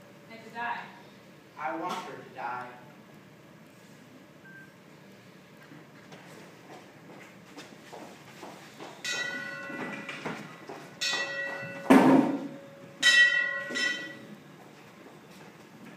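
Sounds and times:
metallic bell-like ringing: 0:09.0 - 0:10.3, 0:11.0 - 0:14.4.

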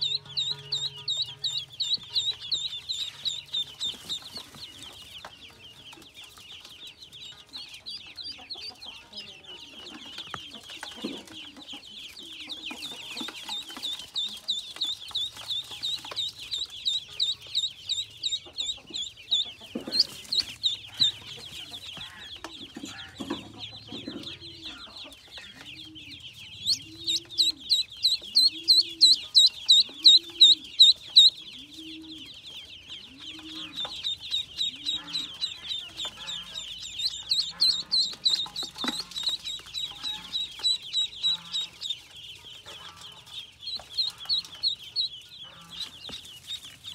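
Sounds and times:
ducklings peeping: 0:00.0 - 0:46.9.

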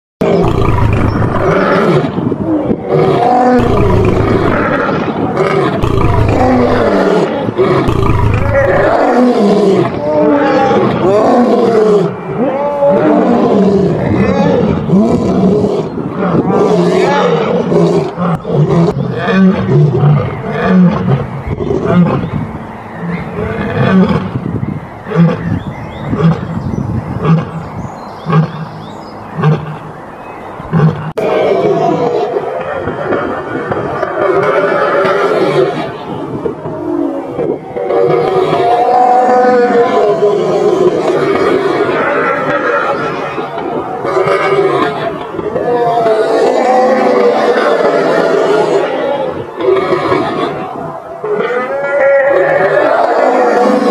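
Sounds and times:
lions roaring and fighting: 0:00.2 - 0:22.4, 0:30.7 - 0:53.9.

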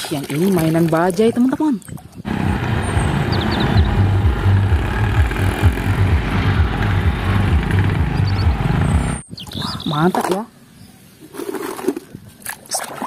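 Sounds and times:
auto-rickshaw engines driving past: 0:02.3 - 0:09.2.

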